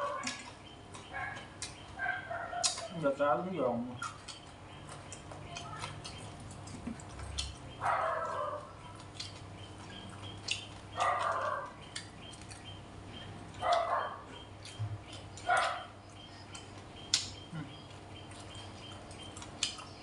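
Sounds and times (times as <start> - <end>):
chopsticks and spoon clicking on bowls: 2.6 - 3.0, 4.0 - 7.7
animal calling: 7.2 - 20.0.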